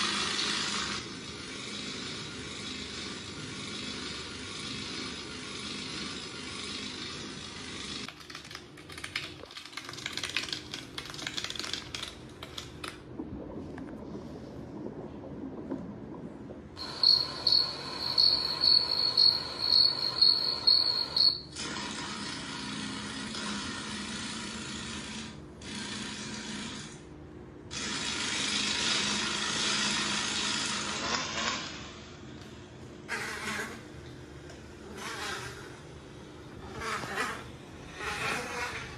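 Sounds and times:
steady hiss: 0:13.6 - 0:21.3
high insect chirping: 0:16.8 - 0:21.4.

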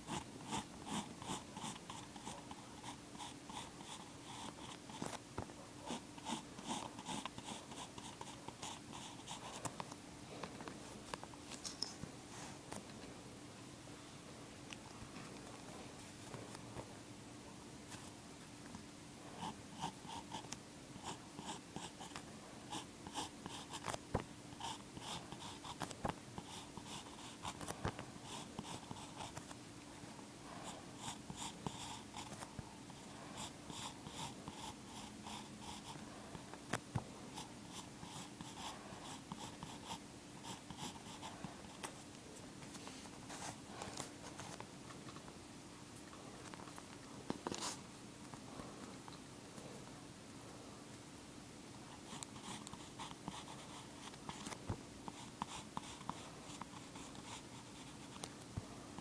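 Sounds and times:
pencil scratching on paper: 0:00.0 - 0:05.2, 0:05.9 - 0:09.6, 0:21.0 - 0:24.0, 0:24.6 - 0:29.5, 0:30.6 - 0:36.0, 0:37.3 - 0:41.8, 0:51.9 - 0:58.2
faint steady hum: 0:00.0 - 0:59.0.

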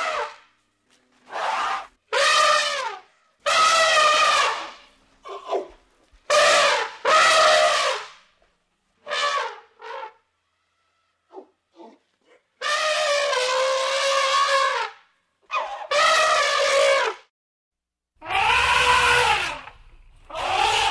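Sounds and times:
elephant trumpeting: 0:01.3 - 0:04.7, 0:12.6 - 0:14.9, 0:15.5 - 0:17.2, 0:18.2 - 0:19.7, 0:20.3 - 0:20.9.

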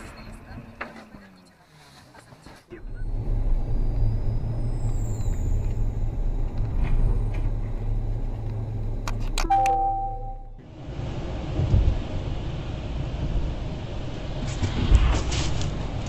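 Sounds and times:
road noise: 0:00.0 - 0:16.0
car engine rumble inside cabin: 0:02.7 - 0:14.9
short multi-tone chime: 0:09.5 - 0:10.5.

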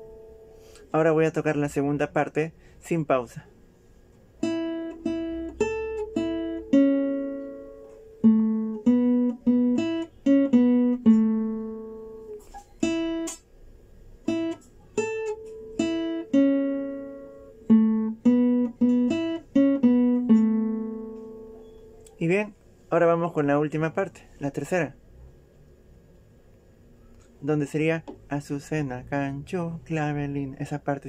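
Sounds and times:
classical guitar slow melody: 0:00.0 - 0:00.8, 0:04.3 - 0:13.5, 0:14.2 - 0:22.1.

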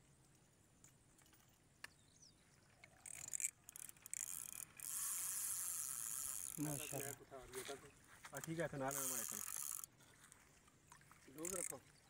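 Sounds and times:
fishing reel drag buzzing: 0:02.8 - 0:07.2, 0:08.4 - 0:10.0, 0:11.3 - 0:11.8.

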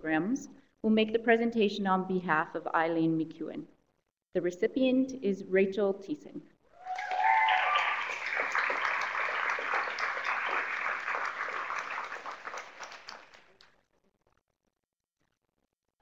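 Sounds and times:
audience applauding: 0:06.8 - 0:13.7.

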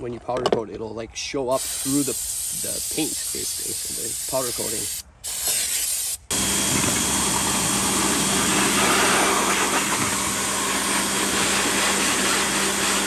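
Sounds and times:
pressure washer humming: 0:04.2 - 0:13.0
water jet blasting plastic tub: 0:06.3 - 0:13.0.

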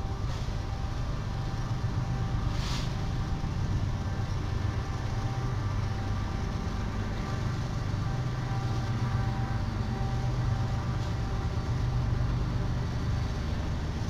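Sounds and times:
diesel locomotive engine running: 0:00.0 - 0:14.0
short hiss: 0:02.5 - 0:03.0.

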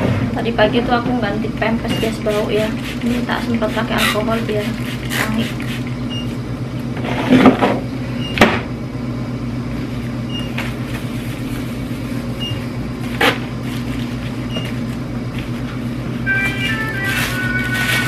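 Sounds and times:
steady electrical hum: 0:00.0 - 0:18.0
plastic bags handled: 0:13.0 - 0:18.0.

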